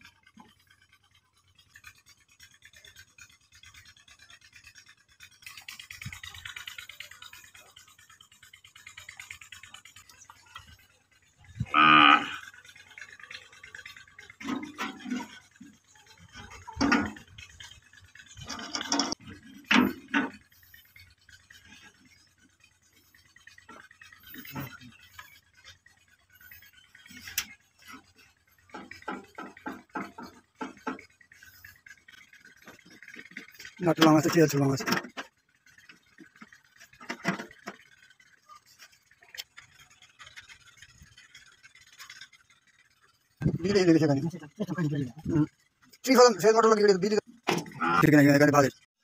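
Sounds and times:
metal scraping: 11.4s - 42.3s.

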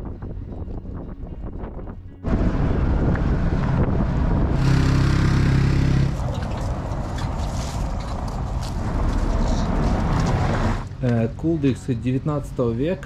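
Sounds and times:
car engine hum: 2.2s - 12.0s
tyres rumbling over cobblestones: 2.3s - 12.3s.

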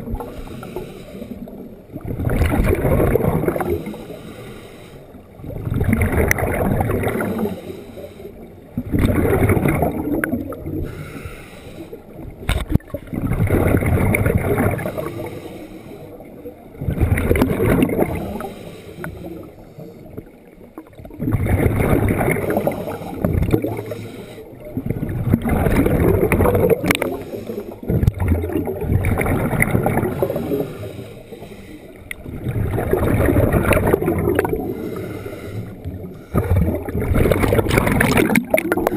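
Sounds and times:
exhaled bubbles underwater: 0.0s - 4.5s, 5.1s - 38.9s
scuba regulator breathing: 0.1s - 1.6s, 3.4s - 5.4s, 7.1s - 8.7s, 10.7s - 12.3s, 14.7s - 16.4s, 18.1s - 20.2s, 22.4s - 24.8s, 25.8s - 28.0s, 30.0s - 38.9s.

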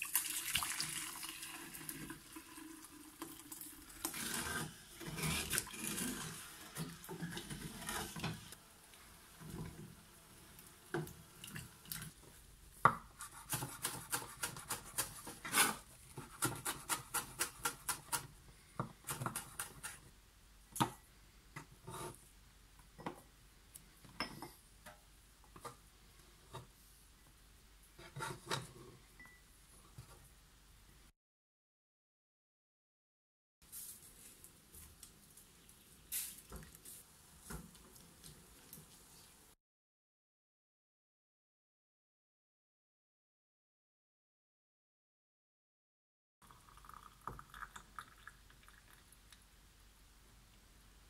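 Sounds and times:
wooden spoon stirring in saucepan: 1.6s - 20.1s
knife chopping on wooden board: 12.9s - 18.2s.

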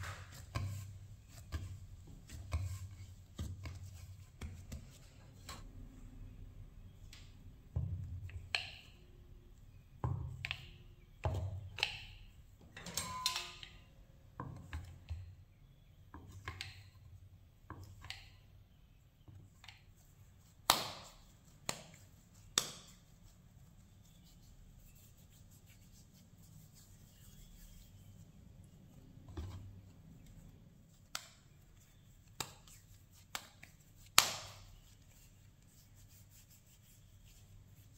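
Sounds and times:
knife cutting dough on a board: 0.0s - 5.7s
hands handling dough: 0.0s - 6.2s, 14.4s - 37.9s.

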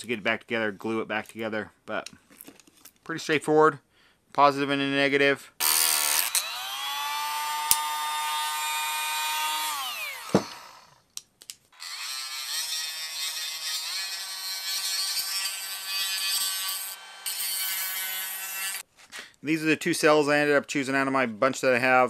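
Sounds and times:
die grinder running: 5.6s - 10.9s.

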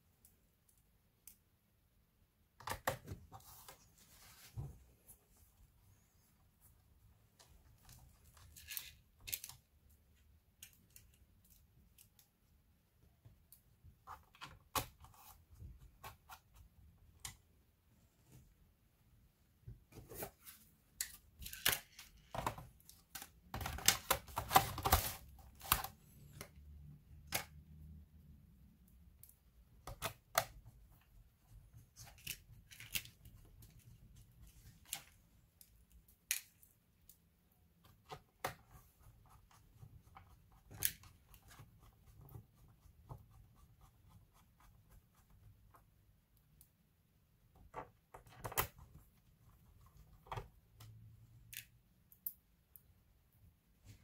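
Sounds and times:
hands handling a plastic laptop case: 19.9s - 26.5s.

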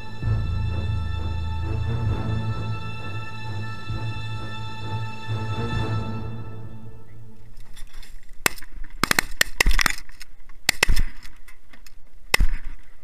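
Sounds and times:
shotgun shots: 8.4s - 11.3s.

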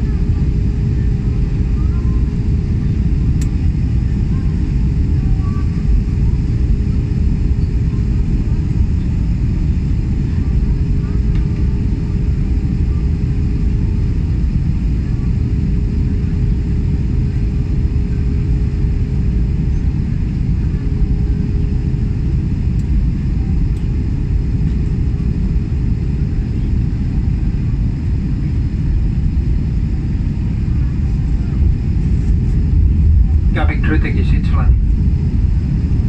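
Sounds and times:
jet engine rumble and rushing air: 0.0s - 36.0s
steady cabin hum: 17.1s - 36.0s.

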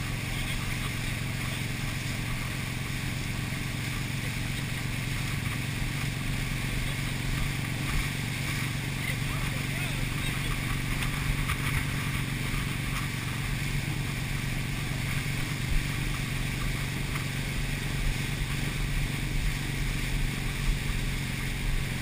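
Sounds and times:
motorboat engine running: 0.0s - 22.0s.

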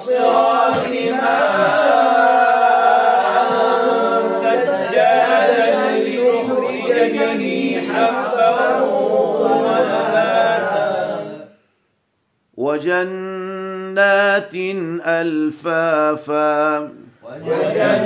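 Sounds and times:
man chanting melodically: 12.6s - 18.0s.

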